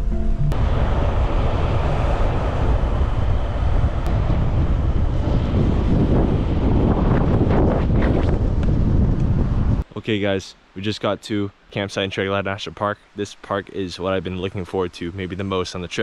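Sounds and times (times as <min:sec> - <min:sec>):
van road noise: 0:00.0 - 0:09.8
wind rushing over microphone: 0:00.0 - 0:09.9.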